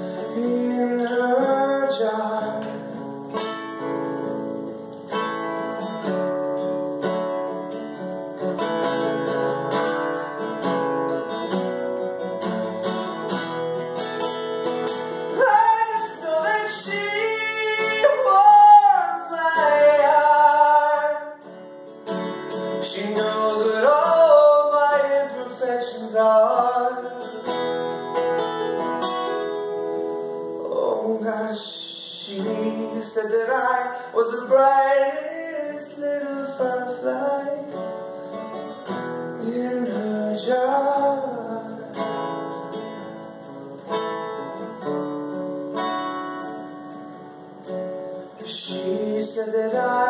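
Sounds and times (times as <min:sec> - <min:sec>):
person singing: 0:00.0 - 0:03.0, 0:15.3 - 0:21.5, 0:22.7 - 0:27.6, 0:30.6 - 0:37.9, 0:39.3 - 0:42.2, 0:48.3 - 0:50.0
acoustic guitar strumming: 0:00.0 - 0:50.0.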